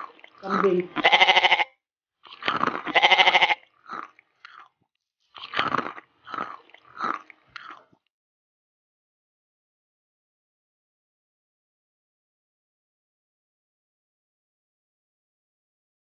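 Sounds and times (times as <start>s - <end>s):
goat-like bleat: 0.4s - 1.8s, 2.5s - 3.7s
crunchy chewing of fried shrimp: 2.2s - 8.1s.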